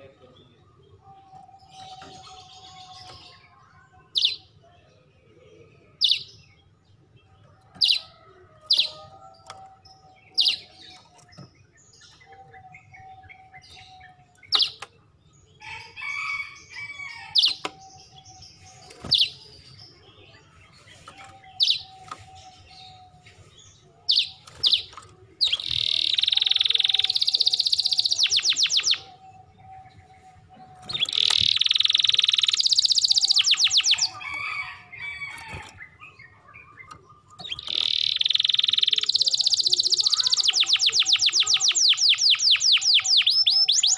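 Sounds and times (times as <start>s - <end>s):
canary chirping: 0.7s - 4.5s, 7.6s - 43.9s
canary fast rolling trills: 24.1s - 29.1s, 30.8s - 36.0s, 37.4s - 43.9s.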